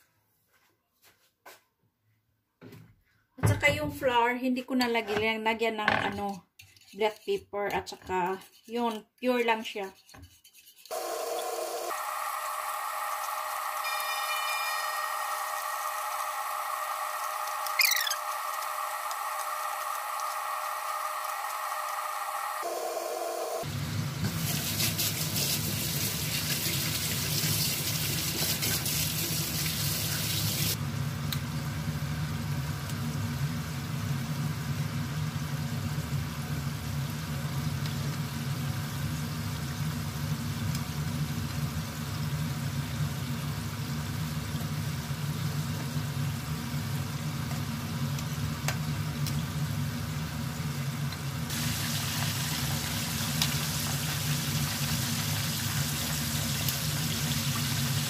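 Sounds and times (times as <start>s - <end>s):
chicken frying in hot oil: 10.9s - 22.6s, 23.6s - 58.0s.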